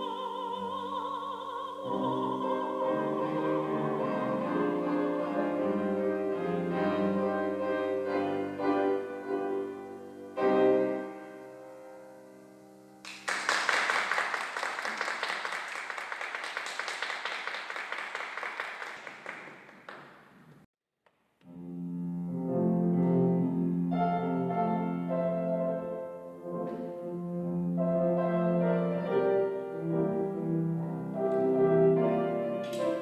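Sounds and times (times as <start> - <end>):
grand piano playing: 0.0 - 13.1, 21.5 - 33.0
audience applause: 13.0 - 20.4.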